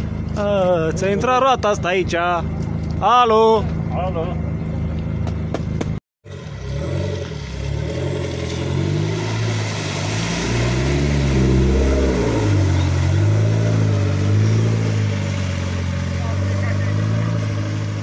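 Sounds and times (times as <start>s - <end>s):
car engine revving: 4.6s - 18.0s
water splashing: 7.4s - 18.0s.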